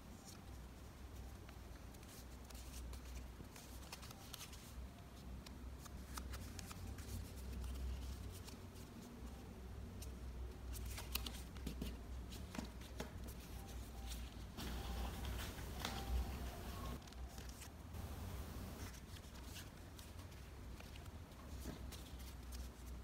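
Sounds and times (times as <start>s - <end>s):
paper rustling and crinkling: 1.7s - 4.7s, 10.7s - 23.0s.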